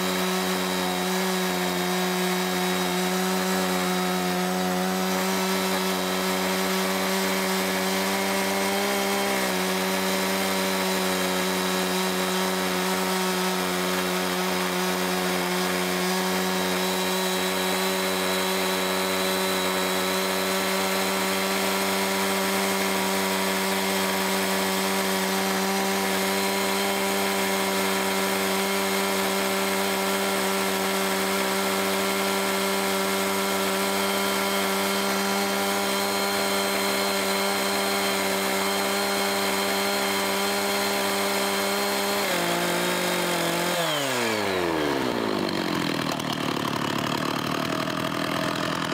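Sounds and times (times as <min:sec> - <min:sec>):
chainsaw cutting log: 0:00.0 - 0:48.9.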